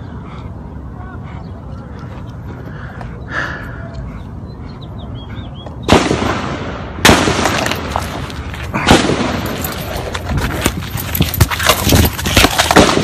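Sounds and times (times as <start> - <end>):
loud gunshots echoing: 5.9 - 8.0, 8.8 - 9.6, 12.4 - 13.0.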